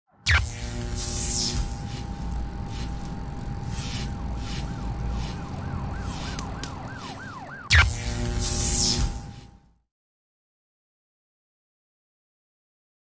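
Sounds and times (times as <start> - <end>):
siren-like warble: 0.2 - 9.6
electronic hum: 0.2 - 9.7.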